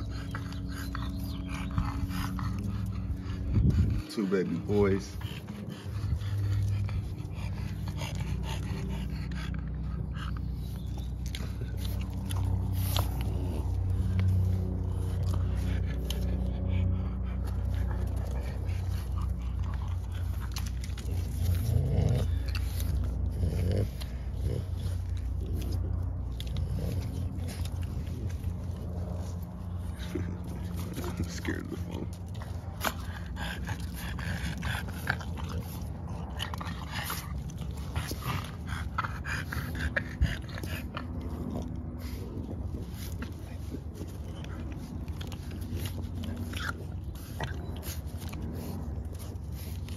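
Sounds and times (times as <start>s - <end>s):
dogs snuffling and licking: 0.0s - 49.9s
puppies playing: 0.0s - 49.9s
puppy mouth and paw noises: 0.0s - 49.9s
steady low hum: 0.0s - 49.9s
small clicks and scuffs: 39.9s - 49.9s.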